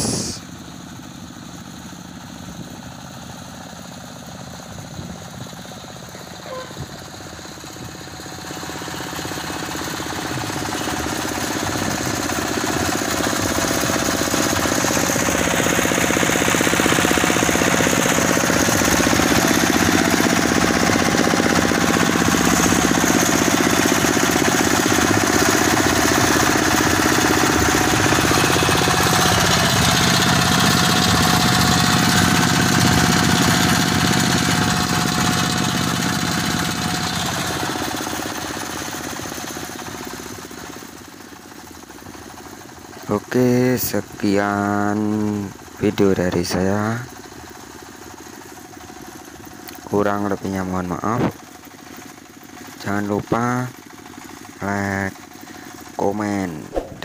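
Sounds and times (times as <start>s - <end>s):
diesel engines clattering: 4.2s - 38.2s.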